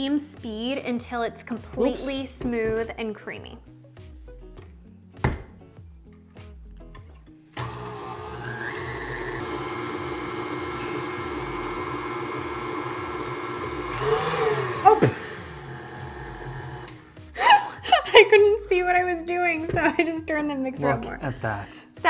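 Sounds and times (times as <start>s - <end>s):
stand mixer motor running: 7.6s - 17.1s.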